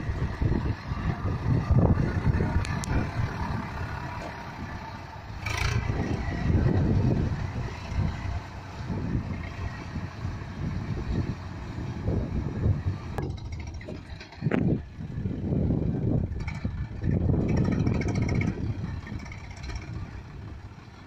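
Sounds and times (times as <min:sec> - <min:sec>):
tractor diesel engine labouring: 0:00.0 - 0:21.0.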